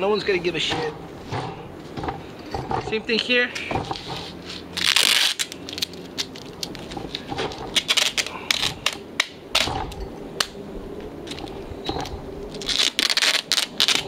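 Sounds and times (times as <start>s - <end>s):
plastic bags crinkling: 3.8s - 9.0s, 12.5s - 14.0s.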